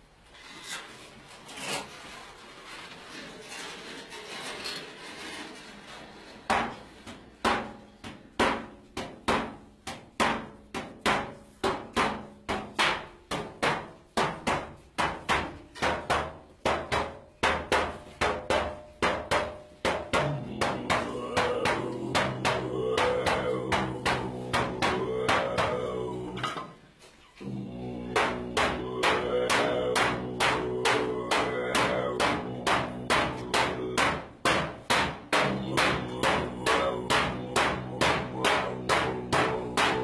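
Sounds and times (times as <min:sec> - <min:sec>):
frame drum beating: 0:07.4 - 0:26.3, 0:27.6 - 0:40.0.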